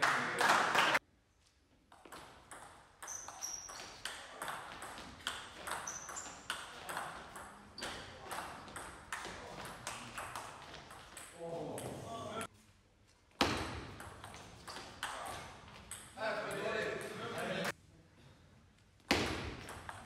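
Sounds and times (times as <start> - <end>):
ping pong ball hitting bats: 1.9 - 12.5, 13.4 - 17.4, 19.1 - 20.0
ball bouncing on table: 2.0 - 11.2, 13.4 - 16.2, 19.1 - 20.0.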